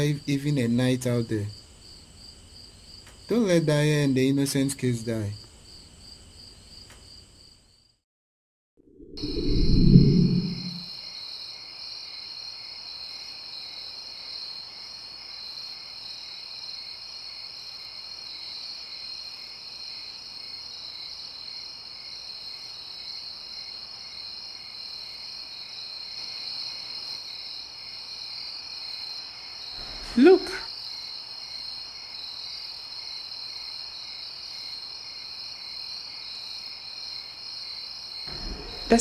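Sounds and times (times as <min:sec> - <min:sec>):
crickets chirping: 0:00.0 - 0:08.0, 0:09.0 - 0:39.0
deep low boom: 0:09.2 - 0:10.8, 0:38.3 - 0:39.0.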